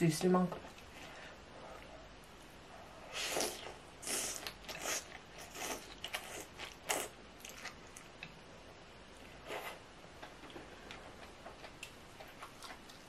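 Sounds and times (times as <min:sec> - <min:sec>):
wet slurping and chewing: 0:03.1 - 0:08.3.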